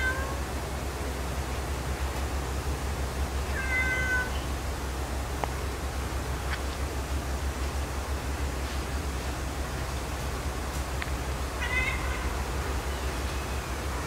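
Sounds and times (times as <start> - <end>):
cat meowing: 0.0 - 0.4, 3.5 - 4.4, 11.6 - 12.4
steady low hum: 0.0 - 14.0.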